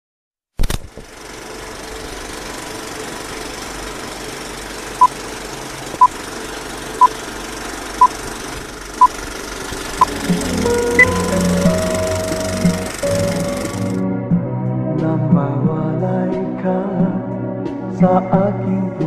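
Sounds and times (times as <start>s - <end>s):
film projector rattle: 0.6s - 10.4s, 11.2s - 14.0s
short high beeps: 10.0s - 13.8s.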